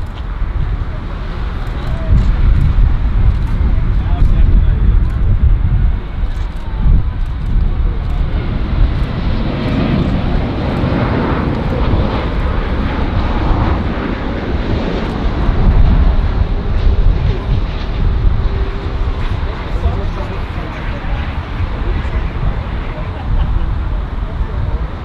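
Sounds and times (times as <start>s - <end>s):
heavy low rumble: 0.0s - 25.0s
jet engines rushing: 0.0s - 25.0s.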